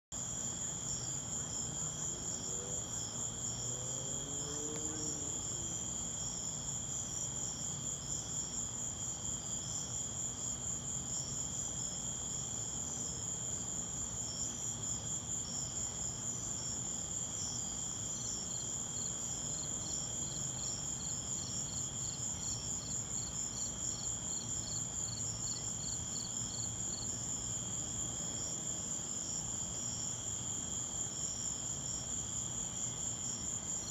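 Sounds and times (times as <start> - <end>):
insect chirping slowly: 0.2 - 33.9
crickets trilling: 13.1 - 33.9.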